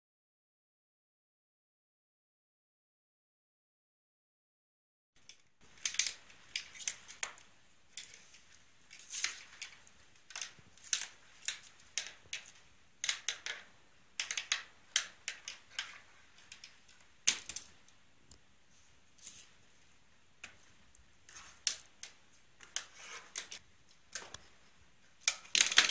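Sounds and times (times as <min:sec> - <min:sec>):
pen clicking and rattling on desk: 0:05.3 - 0:17.8, 0:21.3 - 0:23.6, 0:25.2 - 0:25.9.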